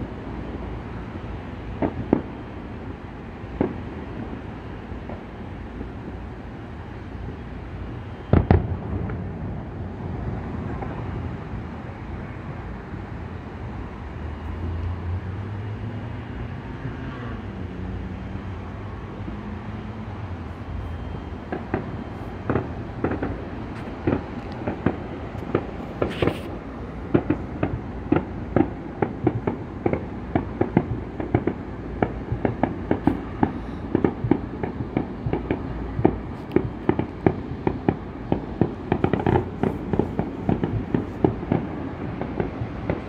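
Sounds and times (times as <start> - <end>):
fireworks bangs: 3.6 - 6.0, 8.1 - 11.1, 21.4 - 43.0.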